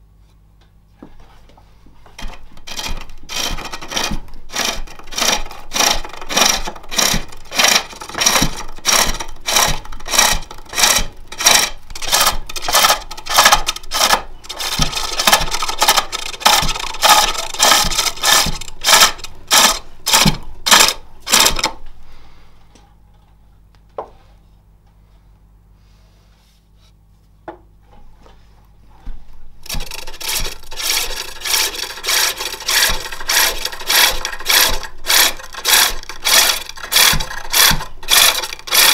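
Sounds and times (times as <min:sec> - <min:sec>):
lathe tool shaving wood: 0:02.2 - 0:21.7, 0:29.6 - 0:38.9.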